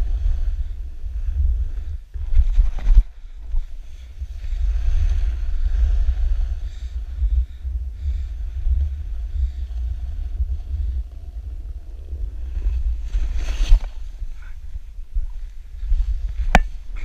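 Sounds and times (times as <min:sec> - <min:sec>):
wind buffeting microphone: 0:00.0 - 0:17.0
skis scraping snow: 0:12.4 - 0:14.3.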